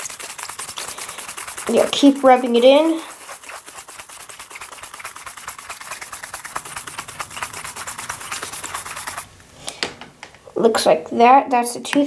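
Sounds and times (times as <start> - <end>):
toothbrush scrubbing phone screen: 0.0 - 9.3.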